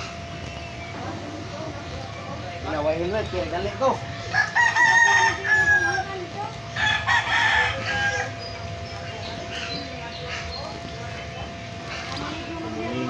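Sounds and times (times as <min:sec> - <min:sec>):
rooster crowing: 0:04.3 - 0:08.5.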